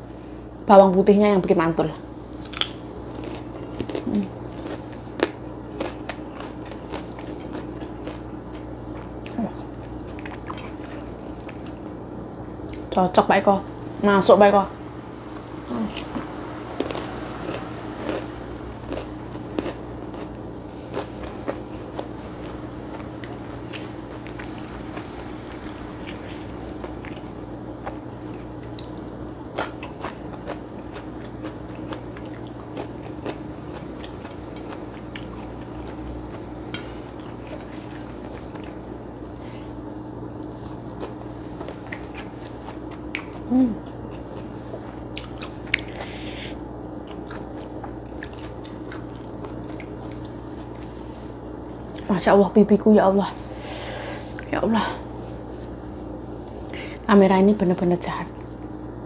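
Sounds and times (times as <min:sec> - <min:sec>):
steady low hum: 0:00.0 - 0:59.0
close chewing and biting: 0:02.4 - 0:11.8, 0:18.9 - 0:39.7, 0:40.4 - 0:50.9.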